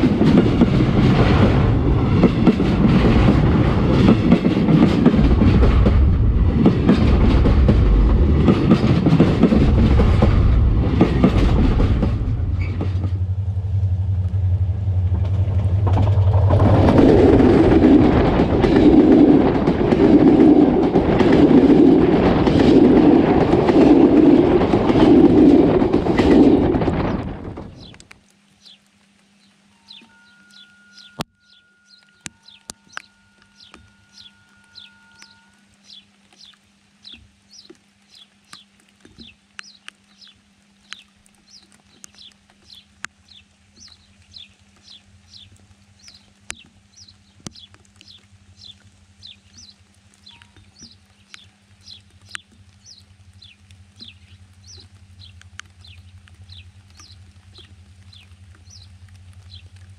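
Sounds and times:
faint low hum: 9.6s - 18.9s
bird chirping: 29.4s - 58.9s.

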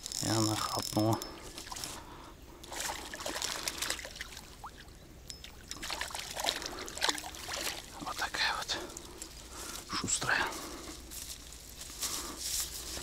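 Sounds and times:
water splashing and trickling: 0.1s - 9.2s.

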